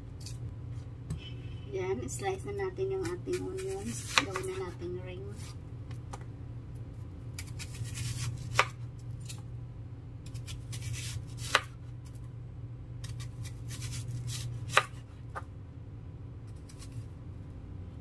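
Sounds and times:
steady low hum: 0.0s - 18.0s
knife slicing onion: 3.0s - 5.6s, 7.3s - 9.4s, 10.2s - 12.2s, 13.0s - 15.4s, 16.5s - 17.1s.

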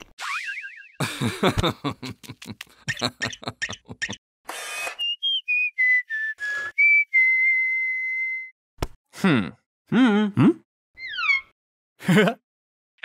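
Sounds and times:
whistled tune: 5.0s - 8.6s.

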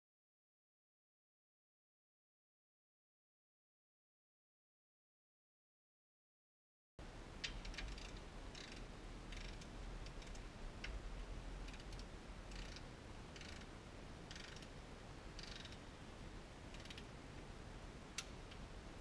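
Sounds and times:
socket ratchet clicking: 7.4s - 10.4s, 11.7s - 12.8s, 13.4s - 13.7s, 14.3s - 14.7s, 15.4s - 15.8s, 16.7s - 17.1s.

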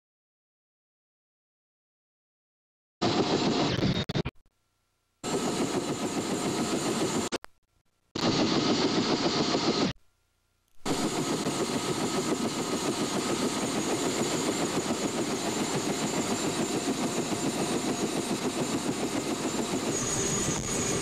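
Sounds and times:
helicopter turbine and rotor: 3.0s - 4.0s, 5.2s - 7.4s, 8.2s - 10.0s, 10.8s - 21.0s.

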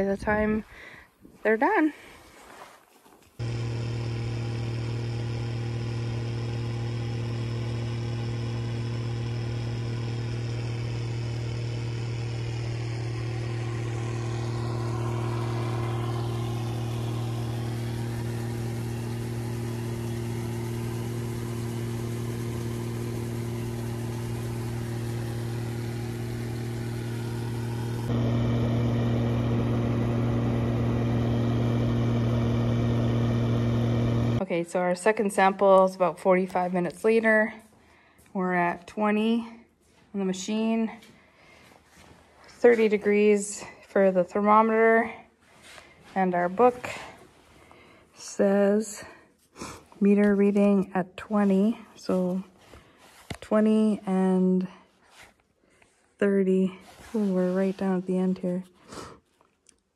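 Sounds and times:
combine harvester engine humming: 3.4s - 34.4s.

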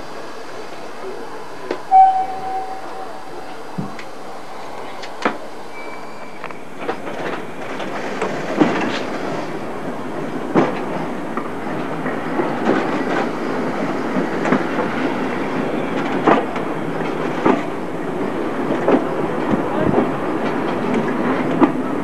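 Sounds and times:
train wheels rumbling: 0.0s - 22.0s.

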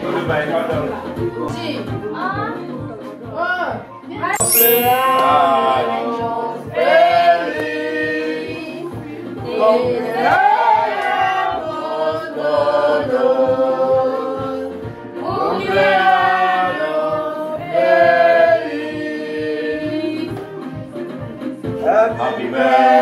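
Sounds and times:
group singing: 5.2s - 20.5s, 22.2s - 23.0s.

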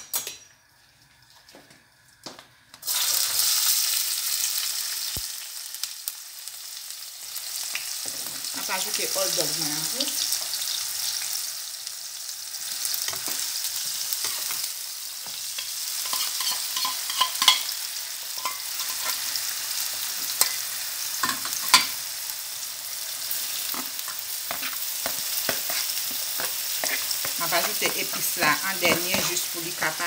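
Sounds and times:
food sizzling in oil: 0.0s - 30.0s
metal spoon scraping a pan: 15.6s - 17.8s, 18.4s - 19.4s, 20.3s - 22.0s, 23.2s - 30.0s.

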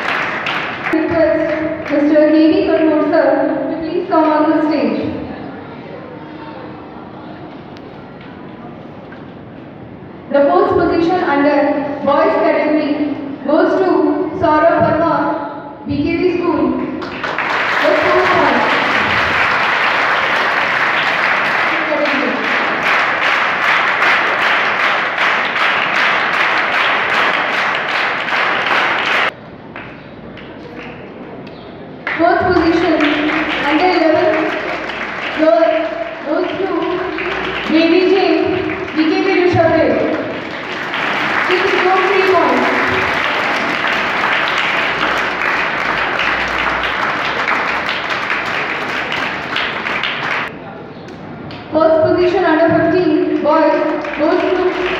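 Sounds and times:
audience applauding: 0.0s - 2.0s, 17.0s - 31.1s, 32.0s - 50.5s, 53.7s - 54.9s.

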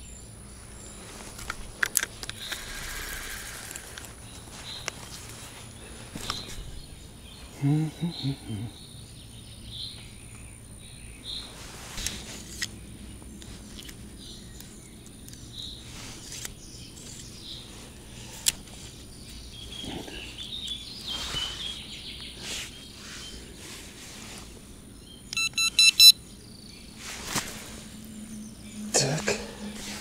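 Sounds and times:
bird chirps: 5.8s - 11.6s, 19.1s - 23.4s, 25.0s - 27.0s
electronic beeps: 25.3s - 26.2s.

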